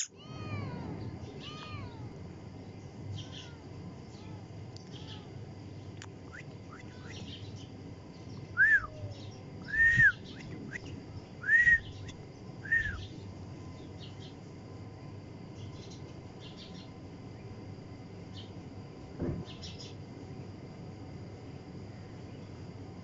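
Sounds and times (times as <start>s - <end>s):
kitten mewing: 0.0s - 2.1s, 3.2s - 5.4s, 6.7s - 7.3s.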